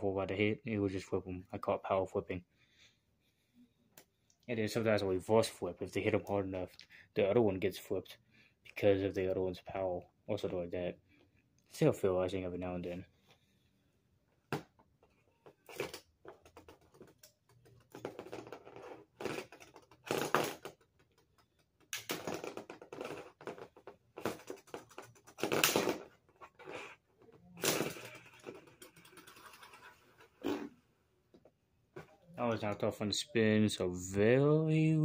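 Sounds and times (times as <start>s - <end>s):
plastic spinning tops clacking: 15.6s - 26.8s, 27.6s - 30.3s.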